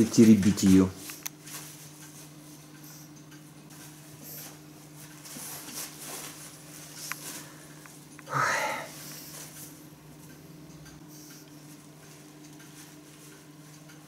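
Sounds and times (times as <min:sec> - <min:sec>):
plastic pad rustling and crinkling: 0:00.0 - 0:02.6, 0:03.7 - 0:07.8.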